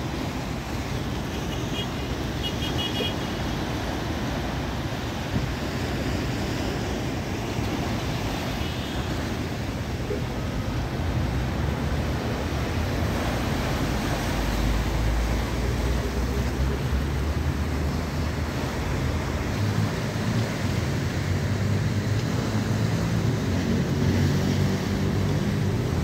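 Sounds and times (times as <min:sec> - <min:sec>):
sea waves breaking on concrete: 0:03.0 - 0:16.4.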